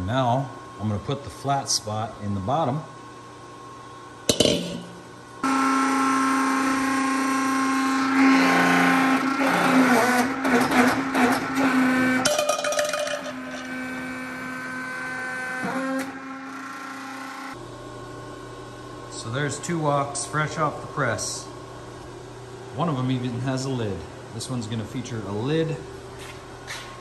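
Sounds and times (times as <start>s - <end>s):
hydraulic pump motor humming: 4.3s - 17.6s.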